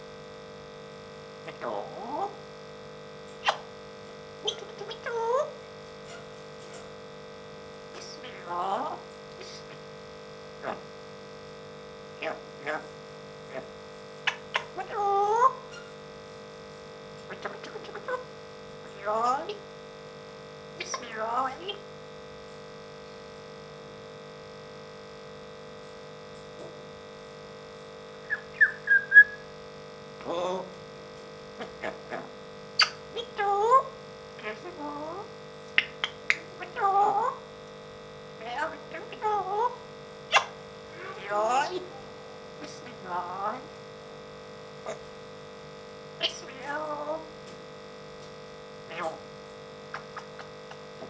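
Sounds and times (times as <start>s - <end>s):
electrical hum: 0.0s - 51.0s
parrot call: 3.4s - 3.7s, 4.4s - 6.3s, 8.0s - 9.7s, 13.5s - 16.0s, 17.3s - 18.3s, 20.8s - 21.8s, 28.2s - 29.5s, 31.6s - 37.4s, 38.4s - 42.0s, 46.2s - 47.3s
parrot chirp: 3.4s - 3.7s, 4.4s - 6.3s, 8.0s - 9.7s, 13.5s - 16.0s, 17.3s - 19.6s, 20.8s - 21.8s, 28.2s - 29.5s, 31.6s - 37.4s, 38.4s - 42.0s, 46.2s - 47.2s, 49.9s - 50.8s
parrot whistled chirps: 28.2s - 29.4s.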